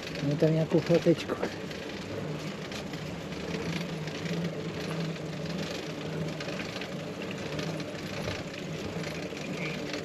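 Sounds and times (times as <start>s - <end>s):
bicycle chain turning: 0.0s - 10.0s
bicycle tyres whirring: 0.0s - 10.0s.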